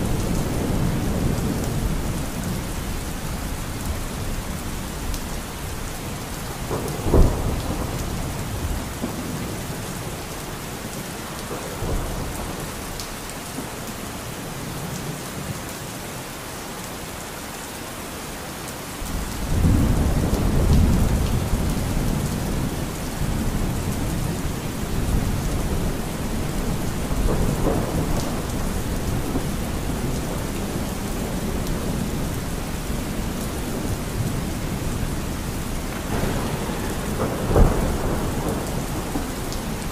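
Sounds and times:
steady rain: 0:00.0 - 0:39.9
rolling thunder: 0:05.4 - 0:10.2, 0:19.1 - 0:39.9.

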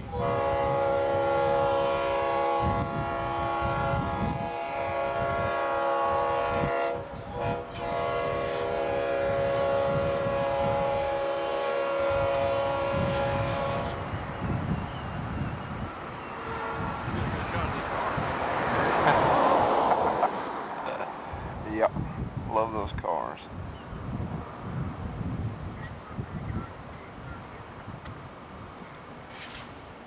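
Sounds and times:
locomotive air horn: 0:00.0 - 0:14.2, 0:16.2 - 0:17.6.

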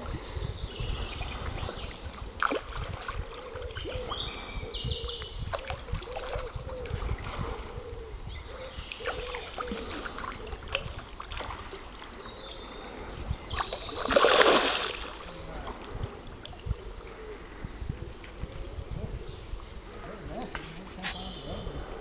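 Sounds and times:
carp splashing: 0:02.2 - 0:04.0, 0:09.0 - 0:12.3, 0:13.5 - 0:15.8
water slaps and clicks: 0:02.4 - 0:04.1, 0:05.5 - 0:07.1, 0:08.8 - 0:12.3, 0:13.6 - 0:16.6.

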